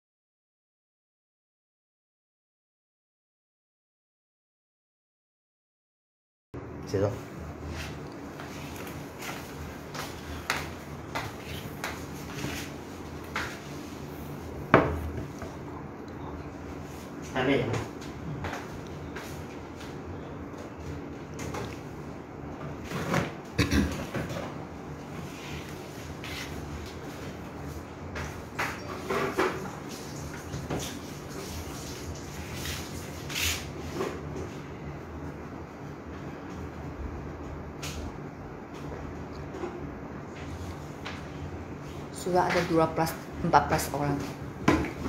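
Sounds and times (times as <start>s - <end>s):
steady low hum: 6.6s - 30.4s.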